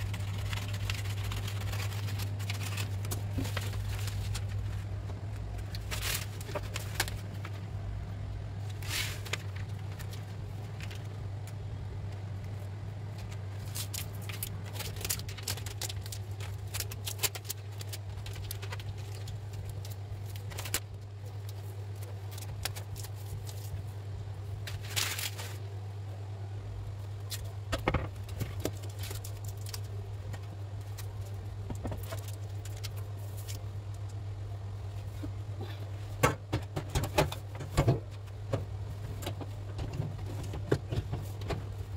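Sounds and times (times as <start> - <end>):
vinyl film rustling and crinkling: 0.0 - 25.8, 27.0 - 35.4, 36.6 - 41.9
steady low hum: 0.0 - 41.9.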